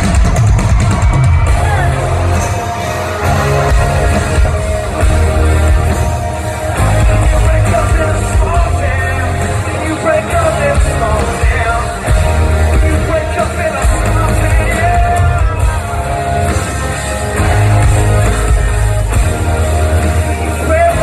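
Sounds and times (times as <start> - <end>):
live band playing country-pop: 0.0 - 21.0
person singing: 6.5 - 16.8.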